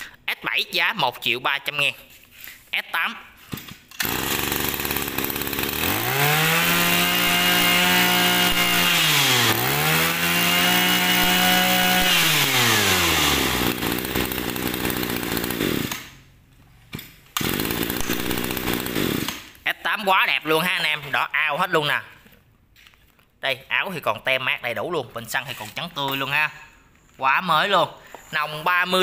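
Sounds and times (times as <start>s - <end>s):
brush cutter engine revving: 3.9s - 16.3s, 17.3s - 19.6s.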